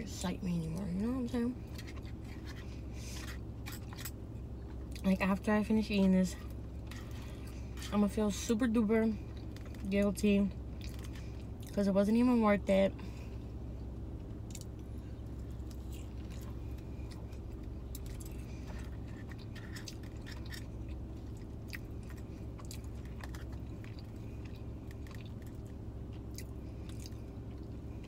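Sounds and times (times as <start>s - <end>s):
steady low hum: 0.0s - 28.0s
chewing with wet mouth clicks: 10.8s - 11.8s, 14.4s - 27.8s.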